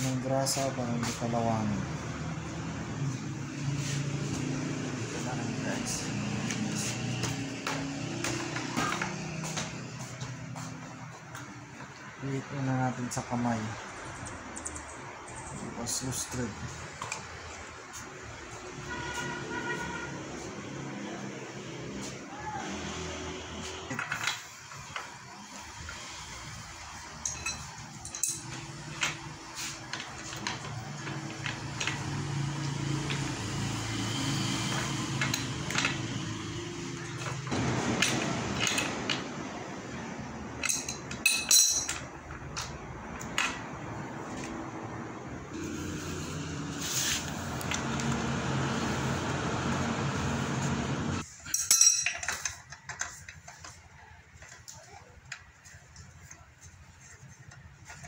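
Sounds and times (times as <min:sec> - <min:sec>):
metal clinks and taps: 0:27.2 - 0:29.2, 0:40.6 - 0:42.7, 0:51.5 - 0:53.2.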